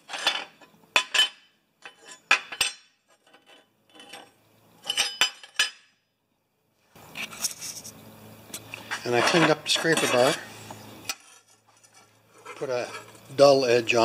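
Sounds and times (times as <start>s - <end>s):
metal parts clinking on workbench: 0.1s - 5.9s.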